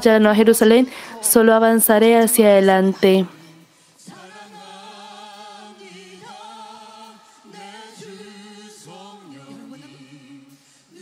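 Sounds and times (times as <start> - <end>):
women singing with backing singers: 2.8 - 11.0.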